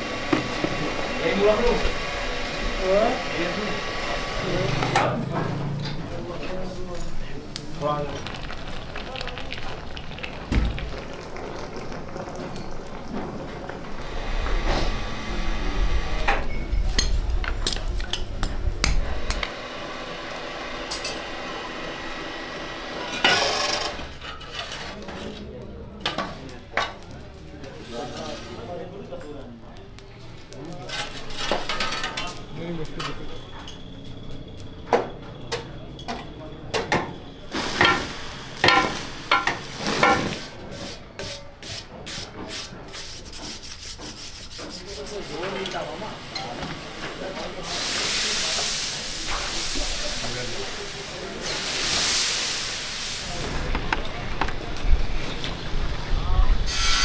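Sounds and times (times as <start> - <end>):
low rumble: 14.0 - 19.5
loud scraping rush: 14.0 - 24.9.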